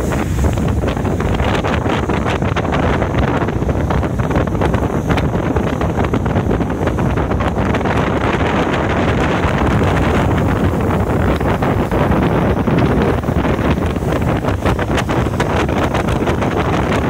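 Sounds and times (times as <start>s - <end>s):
boat running rumble: 0.0s - 17.0s
wind buffeting microphone: 0.0s - 17.0s.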